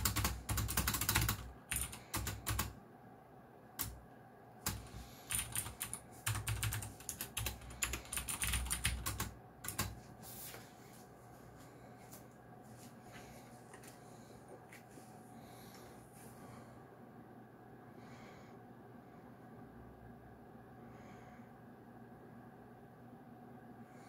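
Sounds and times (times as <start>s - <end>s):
mechanical keyboard clicks: 0.0s - 2.7s, 4.7s - 9.9s
faint room noise: 0.0s - 24.0s.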